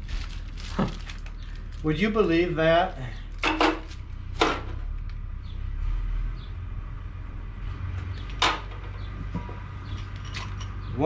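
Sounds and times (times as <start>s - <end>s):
packaging crinkle: 0.0s - 2.5s
low background rumble: 0.0s - 11.0s.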